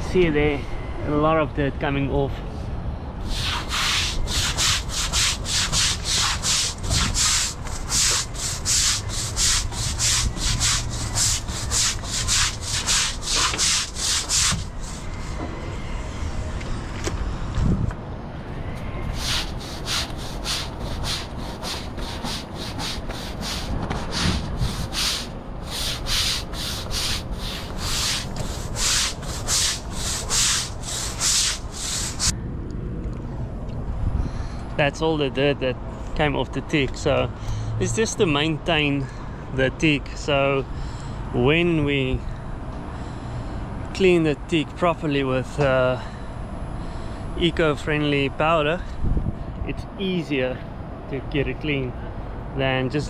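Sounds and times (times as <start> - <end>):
deck brush scrubbing wet deck: 3.2 - 15.2, 19.1 - 32.3.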